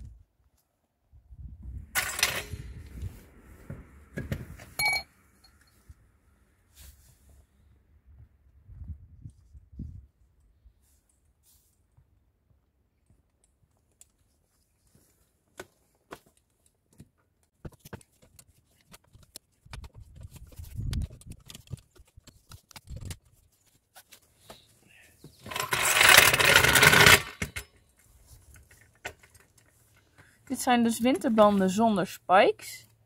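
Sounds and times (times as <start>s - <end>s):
floor jack rolling over pebbles: 25.3s - 27.7s
floor jack clicks and knocks: 25.3s - 27.8s.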